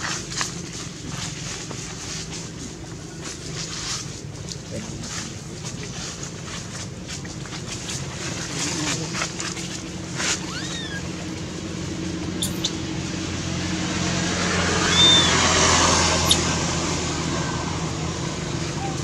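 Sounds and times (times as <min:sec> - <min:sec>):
vehicle engine hum: 0:00.0 - 0:19.0
high squeaks and clicks: 0:10.3 - 0:11.1, 0:12.4 - 0:12.8, 0:14.9 - 0:15.4, 0:16.2 - 0:16.5.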